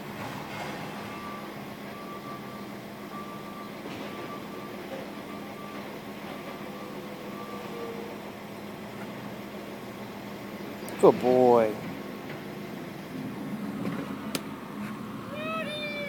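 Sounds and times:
vehicle backup alarm beeping: 0.6s - 11.5s.

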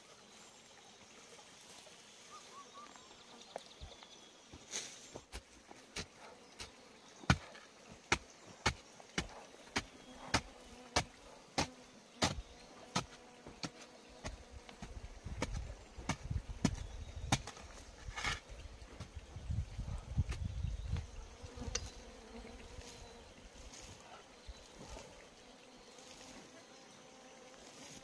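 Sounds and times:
faint insect buzz: 0.0s - 28.0s
digging tool striking earth: 4.7s - 19.2s.

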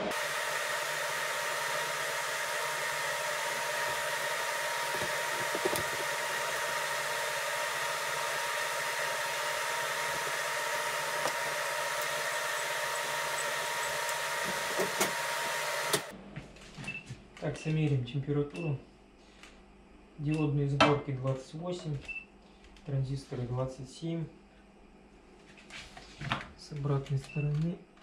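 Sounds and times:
cooling fan with whine: 0.0s - 19.1s.

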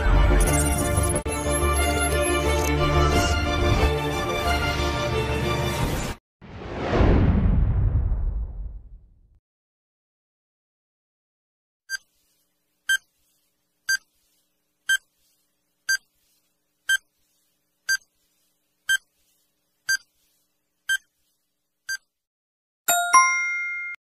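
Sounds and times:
ringing end tone: 22.9s - 24.0s.

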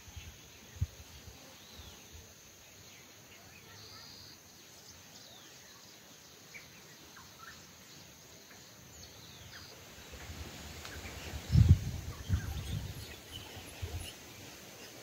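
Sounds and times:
small birds chirping: 0.0s - 15.0s
steady outdoor hiss: 0.0s - 15.0s.

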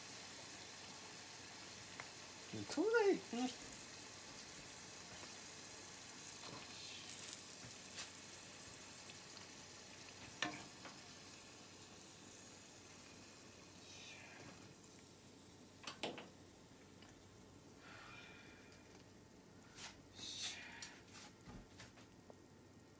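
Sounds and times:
sauce sizzling in a frying pan: 0.0s - 17.8s.

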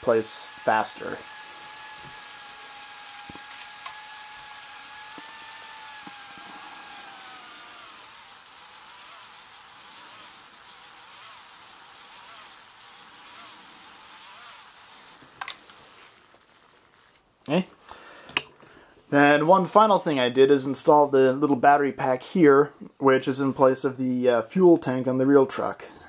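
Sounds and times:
electric motor whining: 0.0s - 17.2s.

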